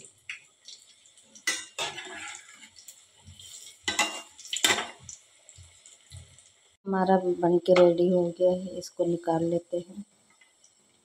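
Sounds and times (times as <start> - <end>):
hot oil sizzling: 0.0 - 11.0
metal skimmer scraping a pan: 1.4 - 5.0.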